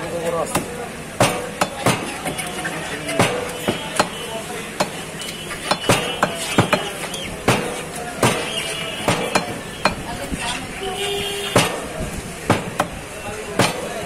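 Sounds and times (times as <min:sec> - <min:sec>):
market voices: 0:00.0 - 0:14.0
knife chopping meat on wood: 0:00.5 - 0:02.5, 0:03.2 - 0:04.2, 0:04.8 - 0:05.0, 0:05.6 - 0:10.1, 0:11.5 - 0:14.0.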